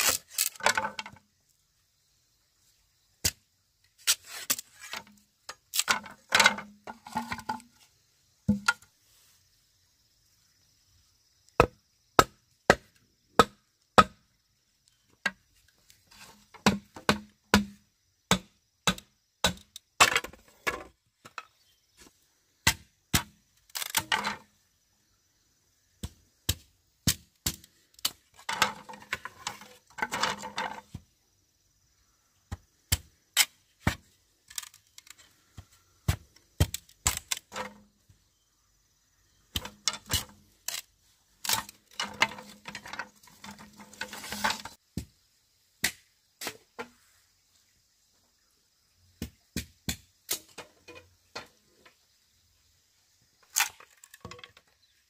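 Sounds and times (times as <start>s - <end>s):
machete chopping bamboo: 8.5s - 8.8s, 11.6s - 14.2s, 16.3s - 20.4s, 22.6s - 24.4s, 26.0s - 31.0s, 32.5s - 35.1s, 36.0s - 37.8s, 39.5s - 45.2s, 45.8s - 47.0s, 49.2s - 50.6s.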